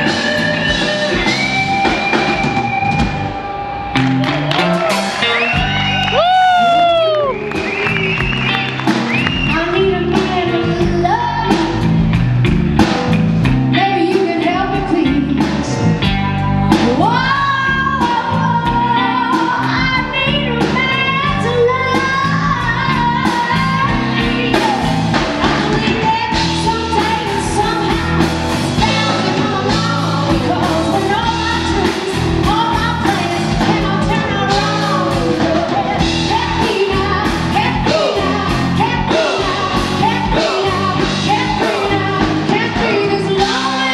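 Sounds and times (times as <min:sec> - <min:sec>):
bass: 0:00.0 - 0:43.9
drums: 0:00.0 - 0:43.9
electric guitar: 0:00.0 - 0:43.9
woman singing: 0:06.6 - 0:11.9, 0:13.7 - 0:16.1, 0:16.7 - 0:43.9.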